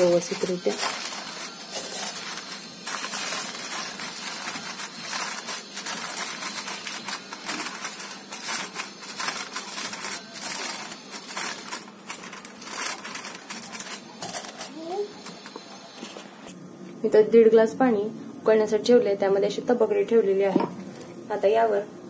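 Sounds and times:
aluminium foil crinkling: 0.0 - 16.2.

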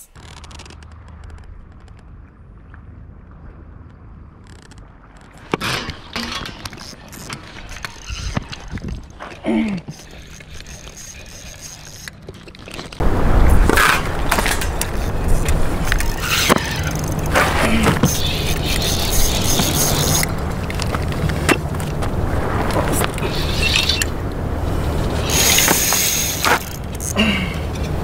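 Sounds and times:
fishing reel clicking: 6.5 - 9.2, 9.9 - 13.0, 18.1 - 20.9, 25.2 - 27.9
steady rushing noise: 12.8 - 28.0.

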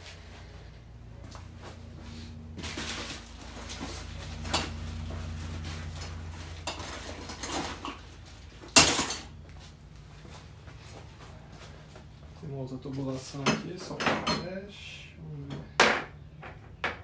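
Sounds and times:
steady low hum: 0.0 - 17.0
metal pipes clanking and rattling: 2.6 - 9.4.

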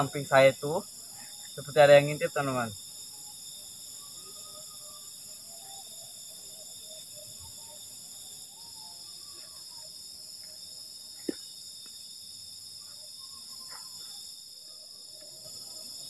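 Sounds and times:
faint wavering calls: 0.0 - 10.8
crickets chirping: 0.0 - 16.0.

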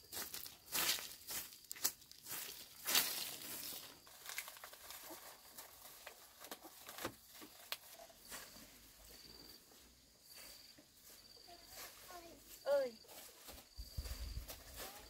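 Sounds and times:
broom sweeping dirt: 0.0 - 4.1, 8.1 - 15.0.

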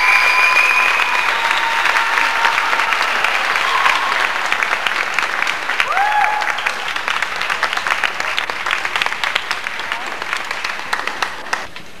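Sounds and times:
spectator cheering: 0.0 - 7.0
audience applauding: 0.0 - 11.8.

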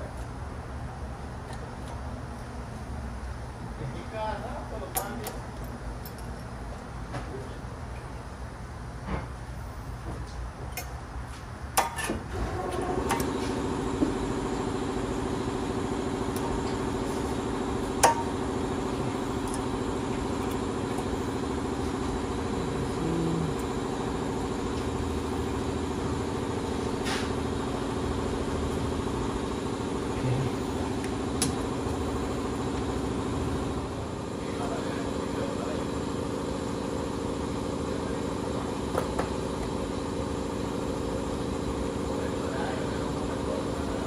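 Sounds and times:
vehicle engine idling: 12.3 - 44.0.

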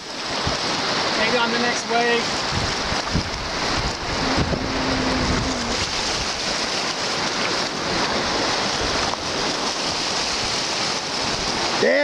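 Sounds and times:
lake waves on gravel shore: 0.0 - 12.0
wind on microphone: 2.3 - 10.6.

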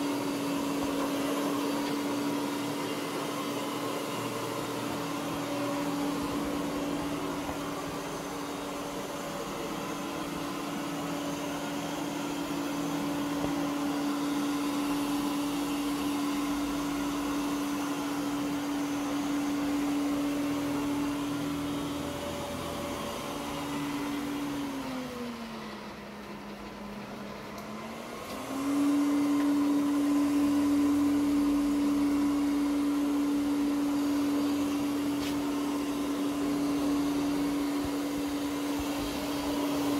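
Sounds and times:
robot vacuum whining on carpet: 0.0 - 39.9.

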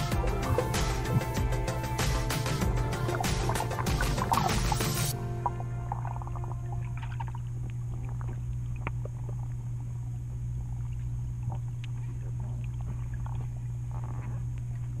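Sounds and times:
underwater low hum: 0.0 - 15.0
underwater clicks and bubbly pops: 3.0 - 9.6.

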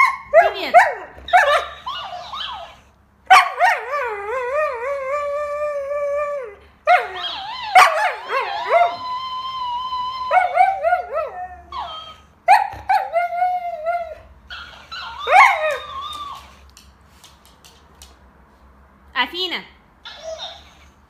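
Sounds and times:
dog howling in warbling yodels: 3.6 - 12.2.

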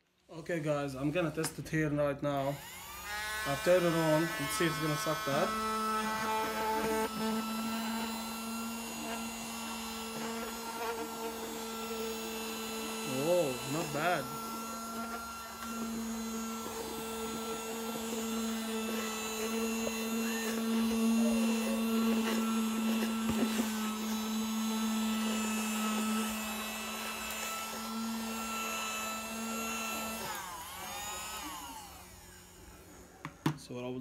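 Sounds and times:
small vacuum cleaner motor humming: 2.4 - 33.6.

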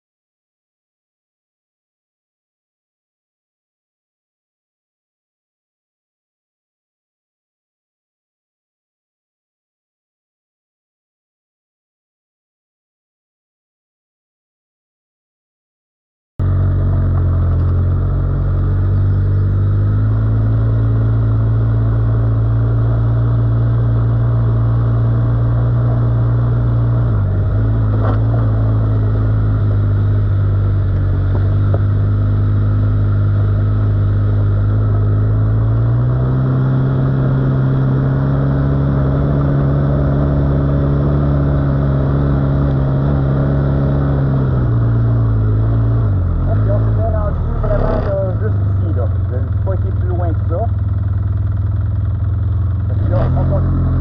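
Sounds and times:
quad bike engine running: 16.4 - 54.0.

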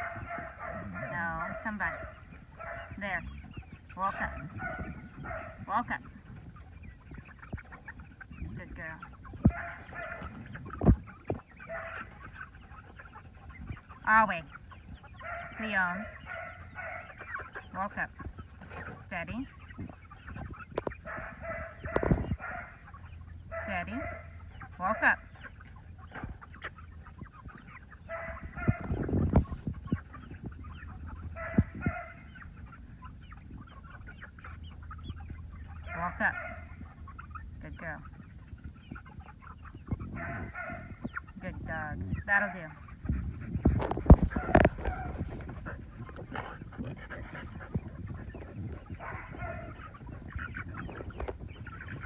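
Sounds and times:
chicken squawks: 0.0 - 52.0
chicks clucking and peeping: 0.0 - 52.0.

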